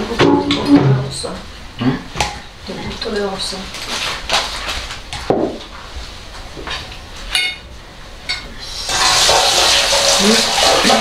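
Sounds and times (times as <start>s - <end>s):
tap water running: 8.6s - 11.0s.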